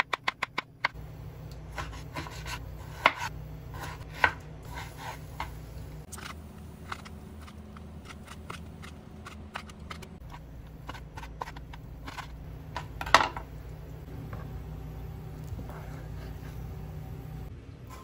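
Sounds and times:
knife laid down on board: 0:13.0 - 0:13.4.

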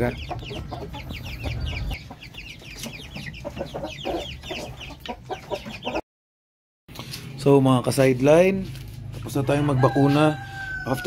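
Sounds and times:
chicks peeping: 0:00.0 - 0:06.0.

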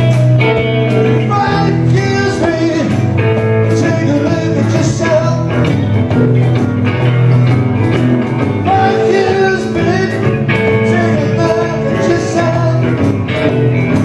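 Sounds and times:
live band playing: 0:00.0 - 0:14.0
man singing into a microphone: 0:01.0 - 0:05.6, 0:08.6 - 0:13.1.

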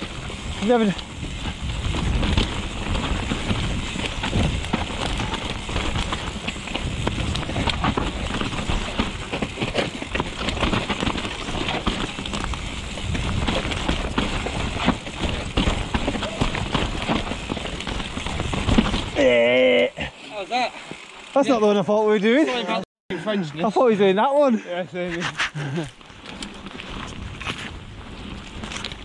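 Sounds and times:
wind noise on microphone: 0:00.0 - 0:19.2, 0:26.2 - 0:29.0
tyres rumbling over dirt: 0:00.0 - 0:21.8
bike chain and frame rattling: 0:00.0 - 0:22.8, 0:25.6 - 0:29.0.

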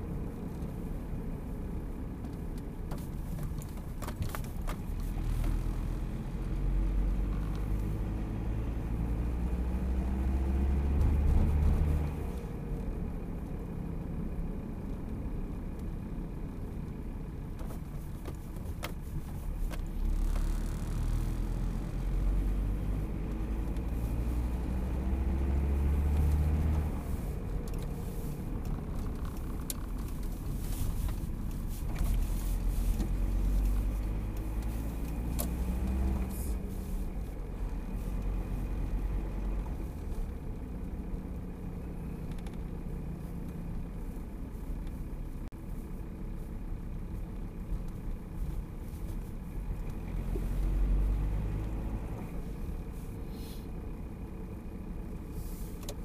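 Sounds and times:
car engine hum: 0:00.0 - 0:56.0
road noise: 0:00.0 - 0:56.0
light clicks and rattles: 0:42.2 - 0:43.6.

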